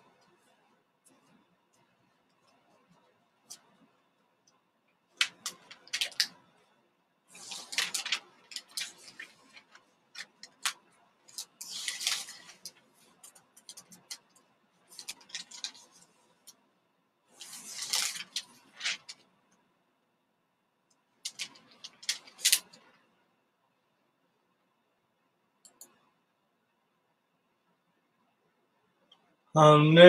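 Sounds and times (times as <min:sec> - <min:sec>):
rustling: 0:07.3 - 0:16.6, 0:17.3 - 0:19.3
sharp clicks and ticks: 0:25.6 - 0:26.1.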